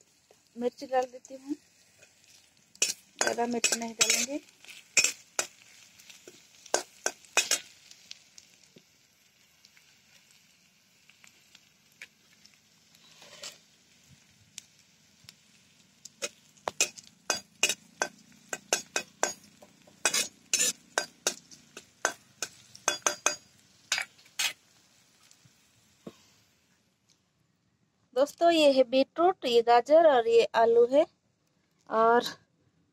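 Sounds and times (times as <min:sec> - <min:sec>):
faint oil sizzle: 0:00.0 - 0:27.2
metal spatula scraping a pan: 0:01.8 - 0:07.9, 0:13.0 - 0:13.7, 0:16.2 - 0:24.6.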